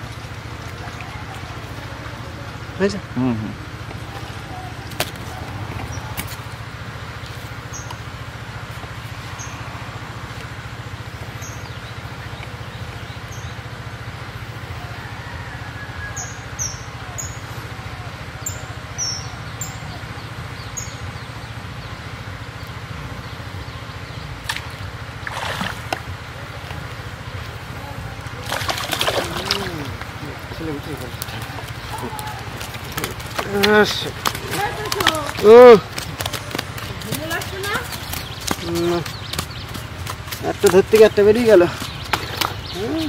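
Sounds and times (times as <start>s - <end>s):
low outdoor hum: 0.0s - 43.0s
fishing line splashing in water: 24.4s - 26.1s, 28.4s - 30.0s.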